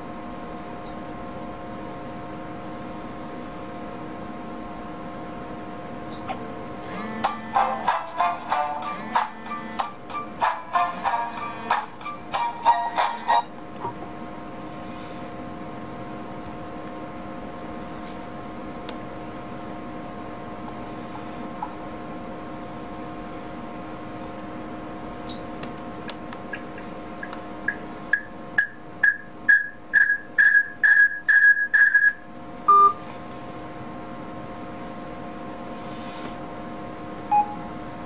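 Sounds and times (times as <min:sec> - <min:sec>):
steady hum: 0:00.0 - 0:38.0
short lower beep: 0:37.3 - 0:37.7.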